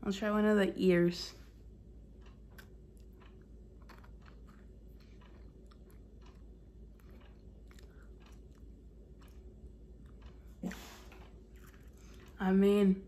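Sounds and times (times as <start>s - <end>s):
person chewing crunchy biscuit: 2.3s - 12.4s.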